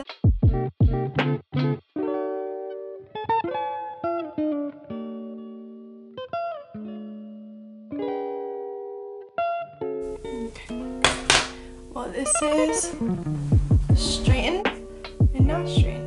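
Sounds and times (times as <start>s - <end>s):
guitar strums and plucked chords: 0.0s - 16.0s.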